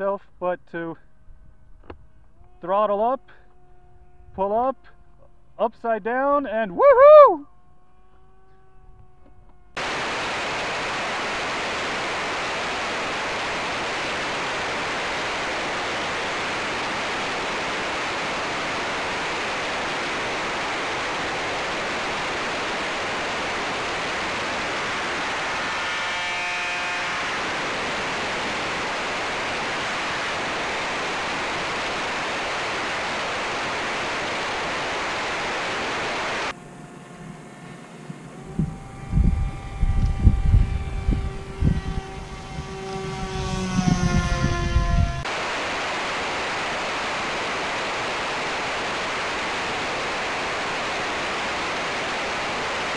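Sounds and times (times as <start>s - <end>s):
static hiss: 9.8s - 39.3s, 44.8s - 52.9s.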